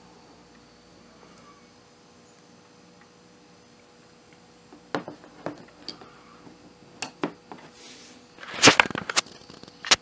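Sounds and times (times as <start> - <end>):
objects clattering on table: 4.8 - 7.7.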